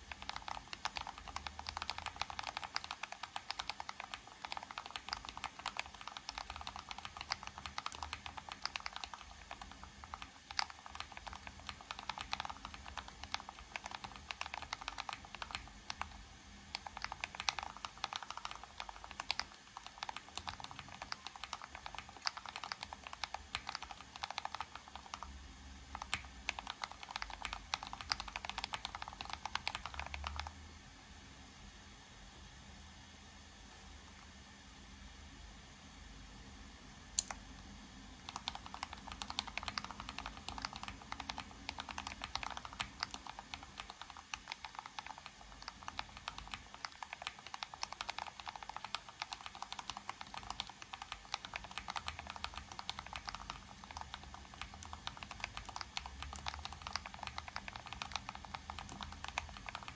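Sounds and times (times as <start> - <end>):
fast mechanical keyboard typing: 0.0 - 30.6, 38.2 - 59.9.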